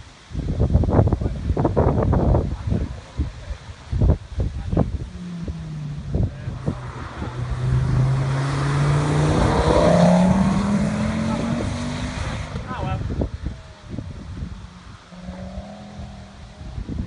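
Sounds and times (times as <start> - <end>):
wind thumps on microphone: 0.3 - 17.0
car engine pulling hard: 4.5 - 17.0.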